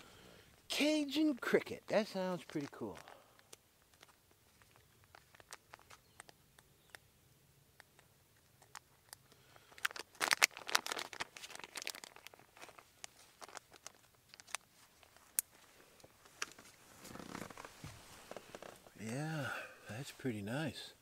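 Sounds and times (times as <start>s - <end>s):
plastic bag crinkling: 1.4s - 6.4s, 8.6s - 18.9s.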